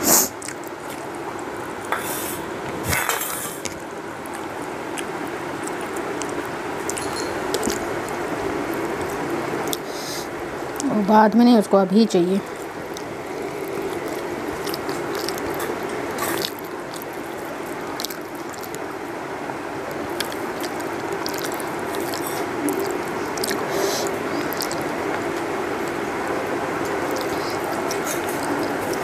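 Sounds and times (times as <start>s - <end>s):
steady background hum: 0.0s - 29.0s
chewing and lip smacks: 0.2s - 1.9s, 3.6s - 9.9s, 12.4s - 19.0s, 19.9s - 26.1s, 26.8s - 29.0s.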